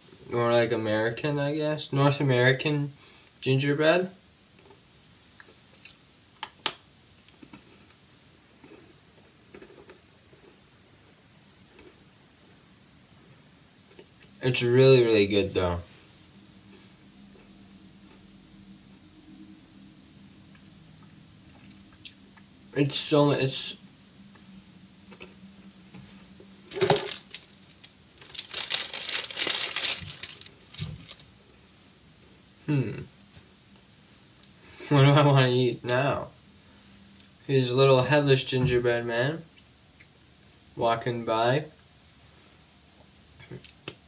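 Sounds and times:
quiet chewing: 0:07.2 - 0:12.6, 0:16.7 - 0:18.3
food packaging crinkling: 0:26.7 - 0:31.3.

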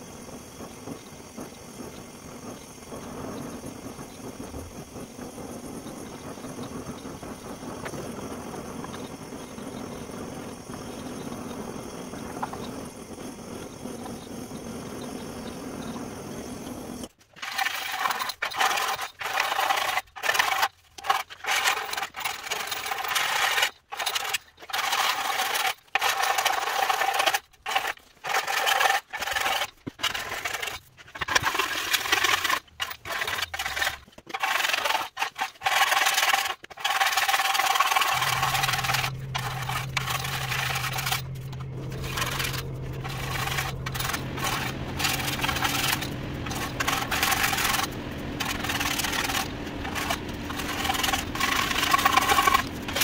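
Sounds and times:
steady low hum: 0:00.0 - 0:17.1, 0:37.7 - 0:53.0
continuous noise: 0:00.0 - 0:53.0
scraping strokes on metal: 0:17.0 - 0:53.0.

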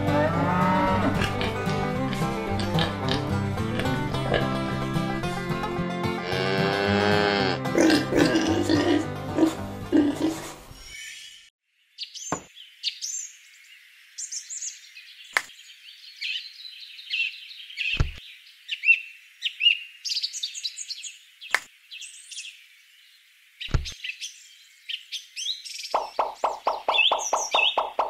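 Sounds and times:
small birds chirping: 0:10.9 - 0:28.0.

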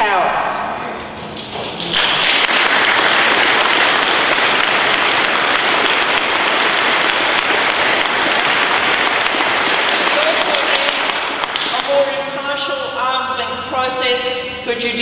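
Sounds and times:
audience applauding: 0:01.8 - 0:12.3.

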